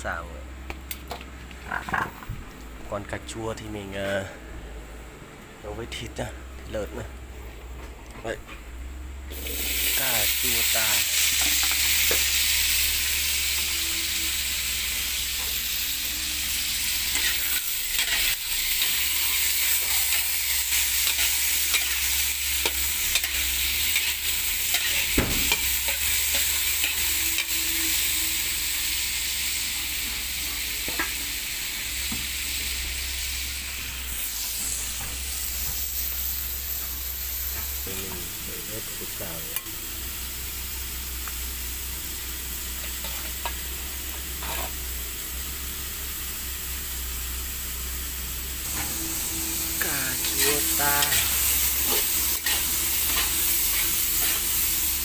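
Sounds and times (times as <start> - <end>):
tomatoes sizzling in hot oil: 9.3 - 55.0
ladle scraping a wok: 17.0 - 28.4, 42.8 - 43.6, 44.3 - 44.8, 48.7 - 54.9.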